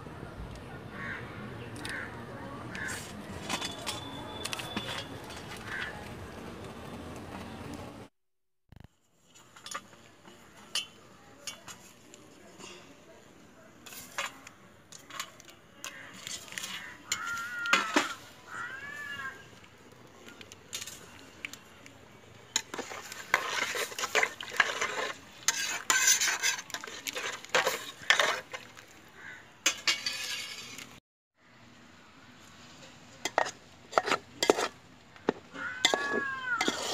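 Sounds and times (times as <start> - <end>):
utensils clinking against pan: 9.6 - 12.0, 22.5 - 28.7, 29.6 - 30.9, 33.2 - 34.7, 35.8 - 36.9
metal spoon scraping a pot: 22.6 - 28.8, 29.6 - 31.0, 33.2 - 36.9.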